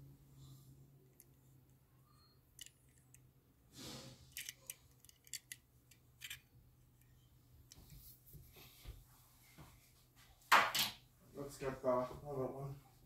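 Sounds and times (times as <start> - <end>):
toy car clicking in fingers: 4.3 - 6.4
soft rustle: 7.0 - 10.5.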